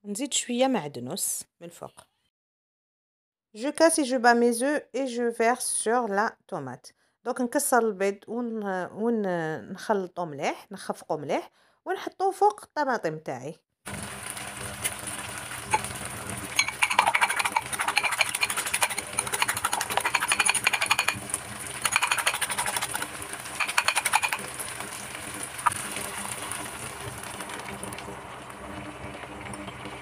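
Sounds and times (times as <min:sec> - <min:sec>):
food sizzling in pan: 0:13.9 - 0:30.0
whisk clinking in ceramic bowl: 0:16.5 - 0:24.5.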